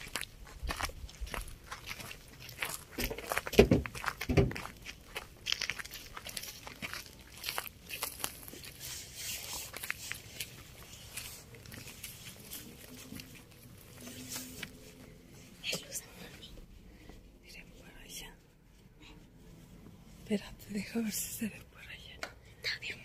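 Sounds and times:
footsteps crunching on dry grass: 0.0s - 15.3s.

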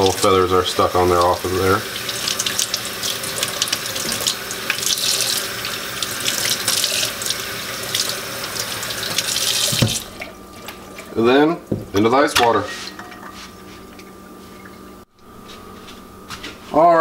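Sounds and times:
faucet running into steel sink: 0.0s - 11.8s.

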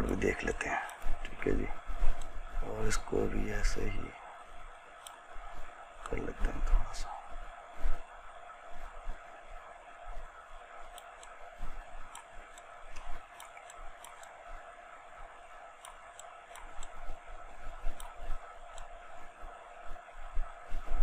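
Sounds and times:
steady background hum: 0.0s - 21.0s
mouse and keyboard clicks: 12.0s - 14.4s, 15.8s - 17.1s, 17.7s - 19.0s.

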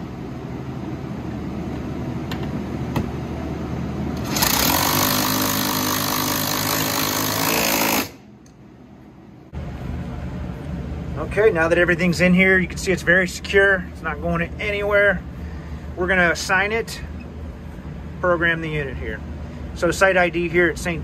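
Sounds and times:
low steady hum: 0.0s - 21.0s
cordless drill running: 4.2s - 8.2s.

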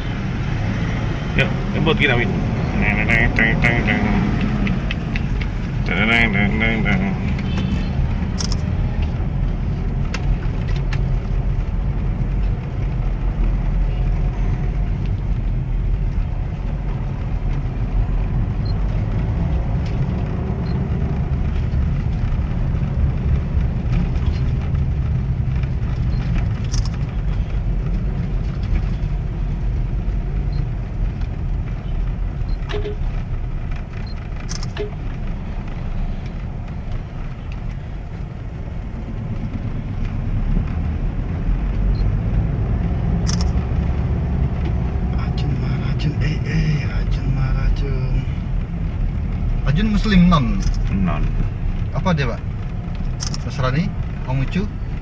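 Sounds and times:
car engine and road rumble: 0.0s - 55.0s
short clicks: 34.5s - 35.0s, 53.2s - 53.5s.

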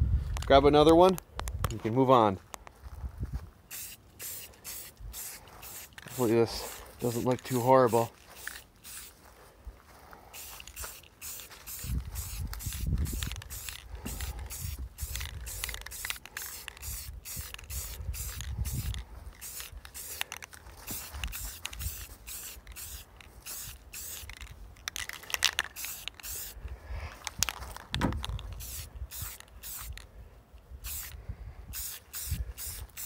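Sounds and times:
spray-paint can hissing in bursts: 3.7s - 9.1s, 10.4s - 24.4s, 25.2s - 26.6s, 28.5s - 30.0s, 30.8s - 33.0s.

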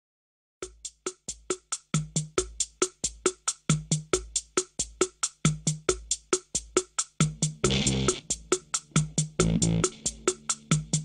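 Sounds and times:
drum machine beat: 0.6s - 11.0s
deep bass hits: 7.6s - 10.1s.

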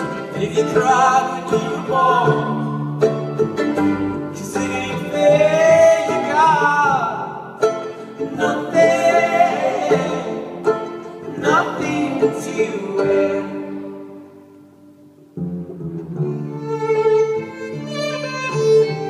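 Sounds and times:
person singing: 0.0s - 3.0s, 4.2s - 7.5s, 8.2s - 14.1s
upright bass: 0.0s - 14.4s
plucked guitar: 0.0s - 19.0s.

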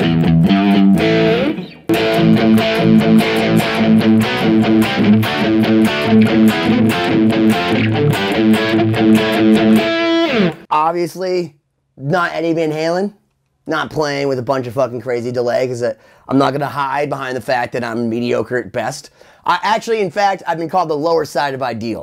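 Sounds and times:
electric guitar fast picked notes: 0.0s - 10.7s.

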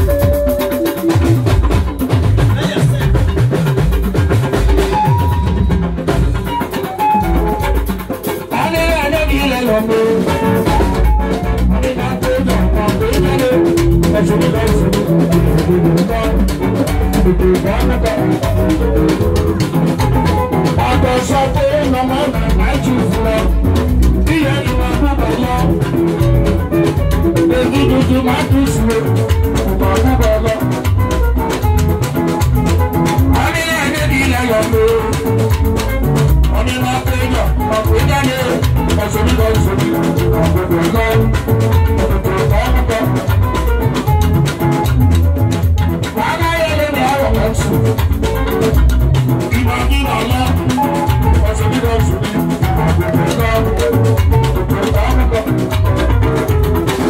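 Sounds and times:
live band playing: 0.0s - 57.0s
man singing into a microphone: 8.4s - 31.4s, 33.1s - 43.8s, 46.0s - 57.0s.

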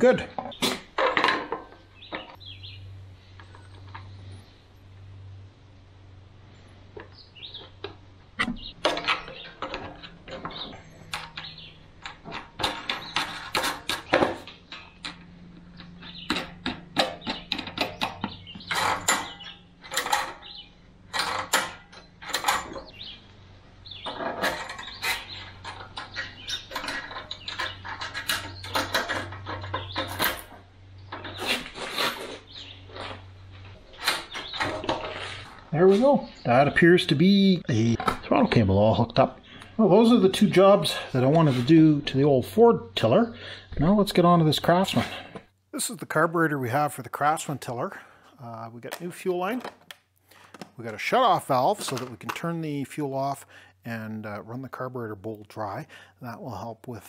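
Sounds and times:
steady low hum: 0.0s - 49.2s
clicks and knocks of tools: 6.9s - 20.5s, 21.1s - 23.4s, 24.0s - 32.3s, 51.8s - 52.5s.

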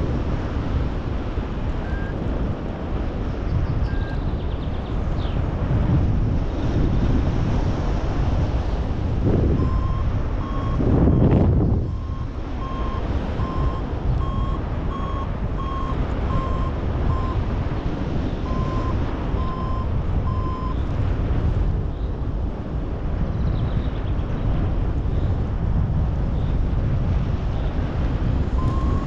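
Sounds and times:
airflow on microphone: 0.0s - 29.0s
variometer beeping: 1.8s - 2.3s, 9.4s - 17.7s, 18.4s - 20.8s, 28.5s - 29.0s.

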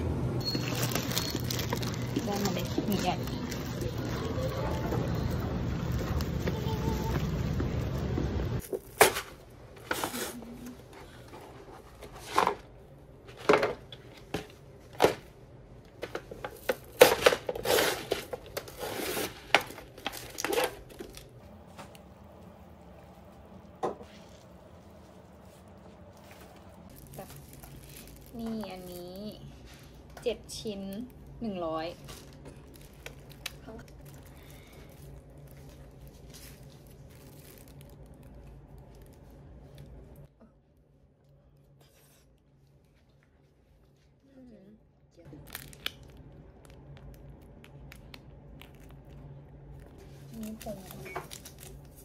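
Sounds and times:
plastic wrappers crinkling and tearing: 0.4s - 7.8s, 16.4s - 21.4s, 26.1s - 40.3s, 45.3s - 52.0s.

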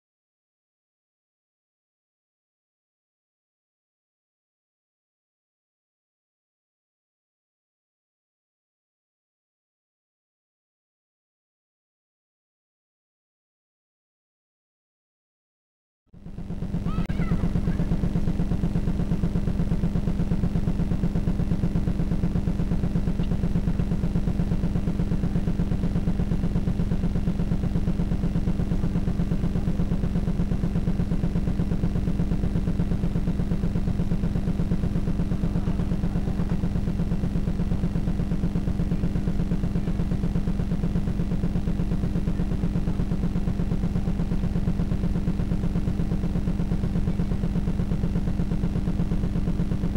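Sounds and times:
low electrical buzz with flutter: 16.2s - 49.9s.

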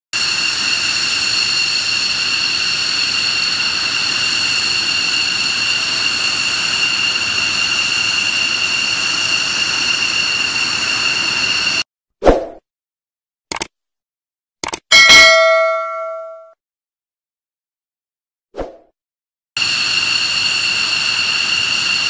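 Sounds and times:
aircraft turbine engines whining: 0.2s - 11.8s, 19.6s - 22.0s.

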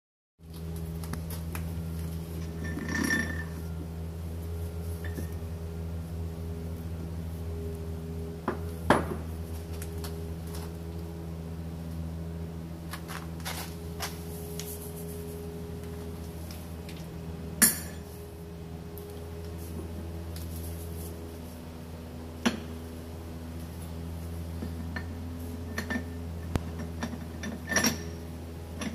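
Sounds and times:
low machine hum: 0.4s - 28.9s
metal clink: 2.6s - 3.6s, 17.6s - 18.1s, 25.7s - 28.2s.

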